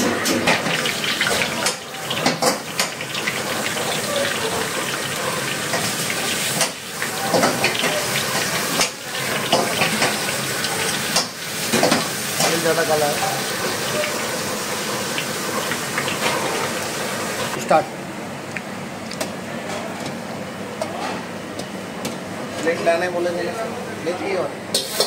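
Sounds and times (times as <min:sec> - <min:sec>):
hot oil sizzling and crackling: 0:00.0 - 0:17.6, 0:24.7 - 0:25.0.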